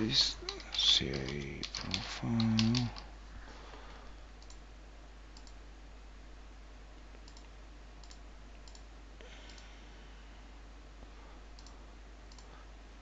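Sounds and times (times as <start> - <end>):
low hum and hiss: 0.0 - 13.0
computer mouse clicks: 0.2 - 3.0, 4.4 - 4.6, 5.3 - 5.6, 7.2 - 8.9, 11.5 - 12.5.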